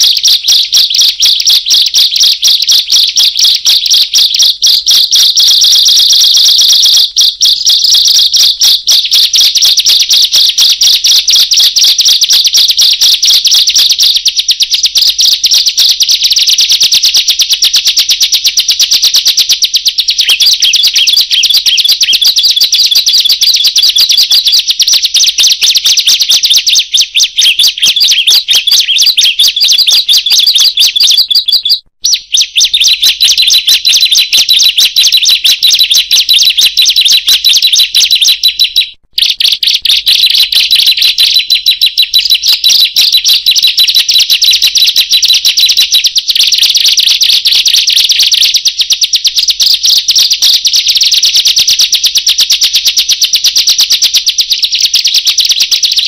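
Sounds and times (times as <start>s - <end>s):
songbird rapid shrill chirps: 0.0s - 16.4s, 19.5s - 43.7s.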